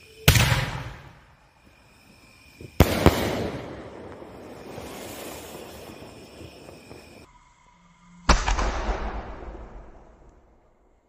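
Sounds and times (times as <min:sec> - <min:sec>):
firework bangs: 0:02.5 - 0:07.3.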